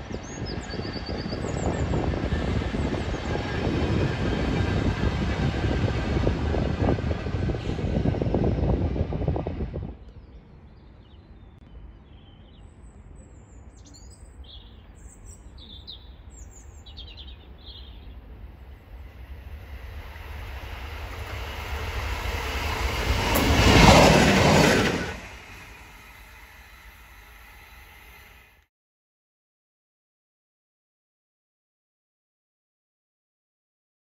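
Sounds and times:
diesel locomotive passing by: 0.0s - 10.7s, 15.5s - 28.6s.

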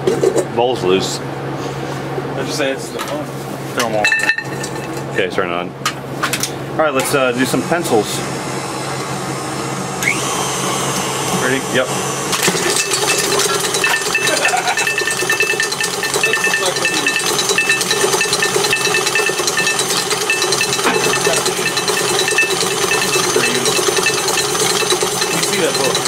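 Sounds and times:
stand mixer motor hum: 10.0s - 26.0s
pencils rattling in steel bowl: 12.5s - 26.0s.

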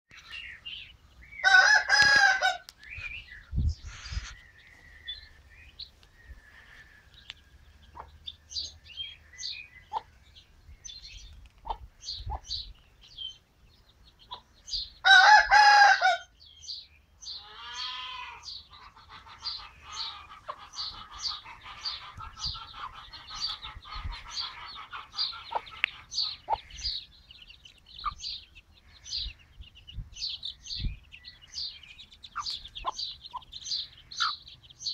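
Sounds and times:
small birds chirping: 0.1s - 15.4s, 16.3s - 34.9s
rooster crowing: 1.4s - 2.7s, 15.0s - 16.3s.

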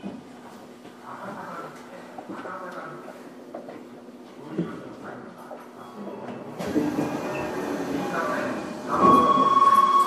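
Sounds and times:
subway car wheels and motor: 5.2s - 10.0s.

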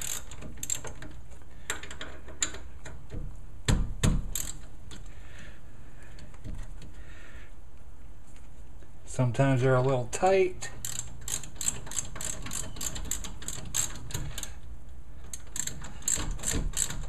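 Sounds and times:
ratchet wrench clicking: 0.0s - 1.1s, 4.3s - 5.0s, 10.8s - 14.6s, 15.3s - 17.0s.

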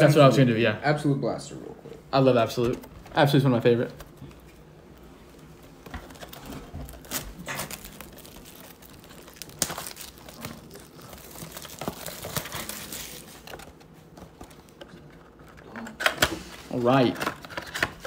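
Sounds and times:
plastic shrink wrap tearing: 4.9s - 13.7s.

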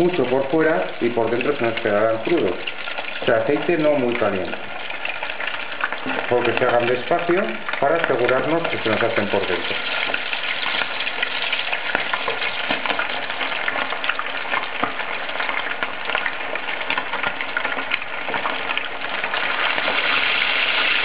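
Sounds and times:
chicken sizzling in frying pan: 0.0s - 21.0s.

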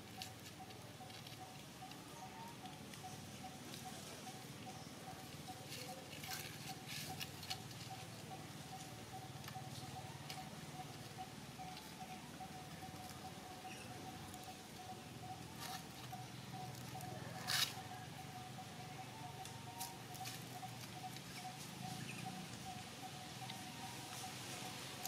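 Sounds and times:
rustles and taps on dry leaves: 0.0s - 3.1s, 5.3s - 12.0s, 19.4s - 21.7s
faint steady tone: 0.0s - 25.0s.

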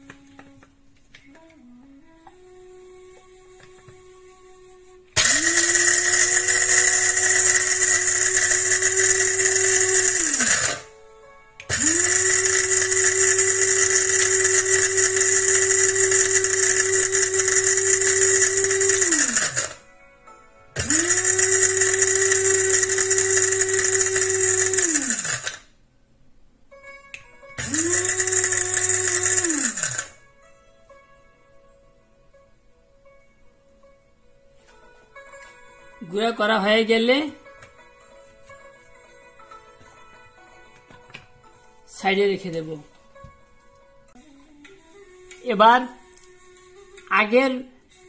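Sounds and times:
electric grinder whining: 5.2s - 10.9s, 11.6s - 19.8s, 20.8s - 25.7s, 27.6s - 30.2s.

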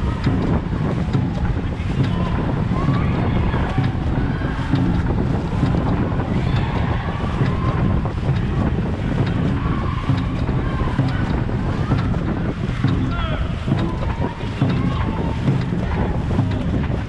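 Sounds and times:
distant voices calling: 0.0s - 17.0s
wind rumble on microphone: 0.0s - 17.0s.

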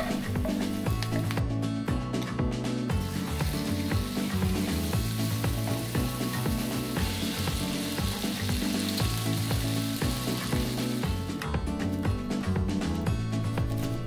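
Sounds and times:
background music low notes: 0.0s - 14.0s
chicken sizzling in frying pan: 3.0s - 11.2s.

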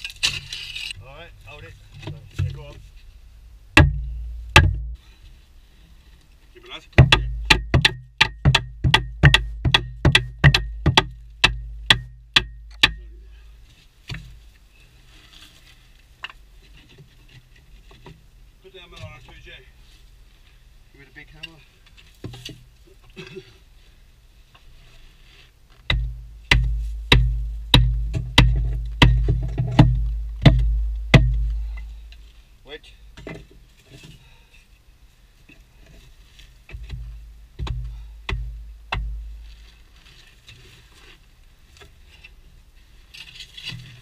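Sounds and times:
hammer striking timber: 3.8s - 5.0s, 7.0s - 13.1s, 25.9s - 31.8s, 37.6s - 39.3s.

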